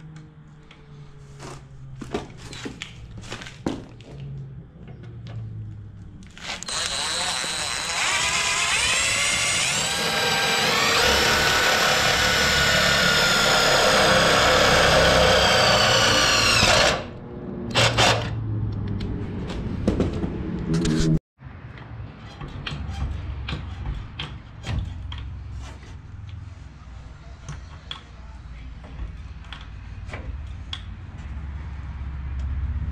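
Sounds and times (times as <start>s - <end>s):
power drill cutting sheet metal: 6.4s - 18.4s.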